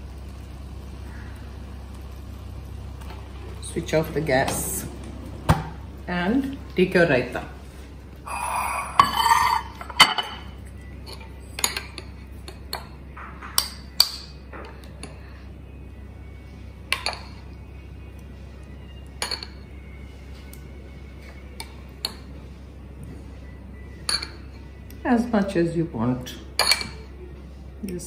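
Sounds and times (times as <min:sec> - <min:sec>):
low steady hum: 0:00.0 - 0:28.0
spoon clinking against bowls: 0:09.0 - 0:15.2, 0:19.2 - 0:19.6, 0:24.0 - 0:24.7, 0:26.6 - 0:27.1.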